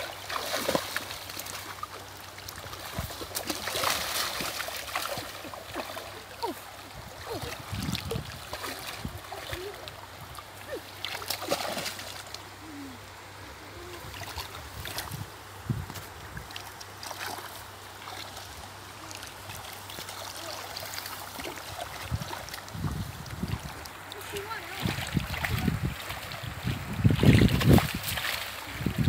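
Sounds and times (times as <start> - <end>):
muddy water splashing: 0.0 - 29.0.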